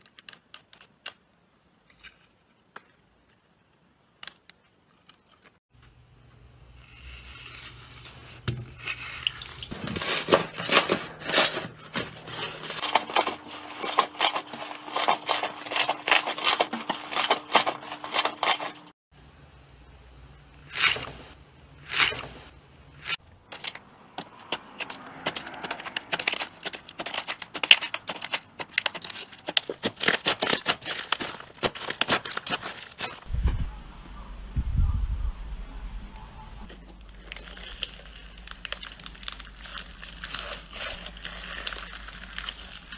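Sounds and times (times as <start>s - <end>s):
slime squelching and crackling: 23.1s - 33.3s, 36.7s - 42.9s.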